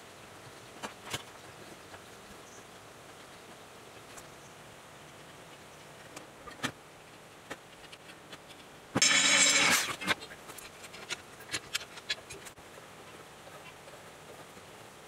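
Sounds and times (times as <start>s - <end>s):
electric drill boring into metal: 9.0s - 10.0s.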